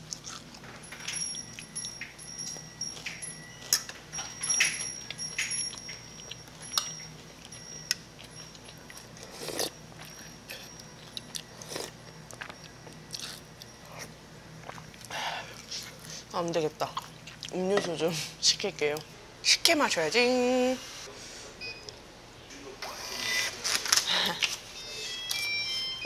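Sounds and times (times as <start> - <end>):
chewing: 0.0 - 17.6.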